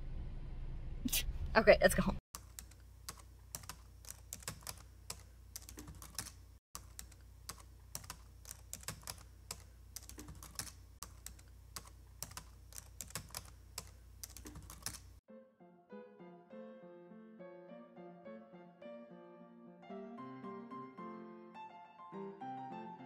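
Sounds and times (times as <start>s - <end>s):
computer keyboard typing: 2.4s - 15.2s
piano music: 15.3s - 23.0s.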